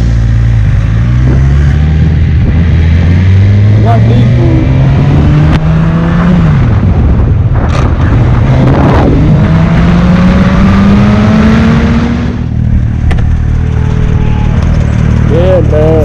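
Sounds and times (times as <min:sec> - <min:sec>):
motorcycle engine: 0:00.0 - 0:16.0
wind rush: 0:04.6 - 0:15.0.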